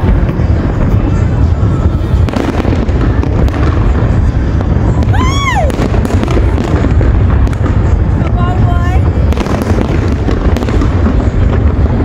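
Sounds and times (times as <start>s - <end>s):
fireworks booms and bangs: 0.0s - 12.0s.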